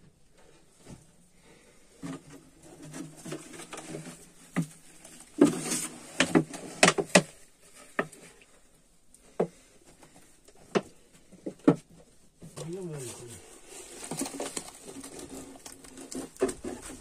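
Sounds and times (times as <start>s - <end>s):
plastic bag rustling: 12.6s - 17.0s.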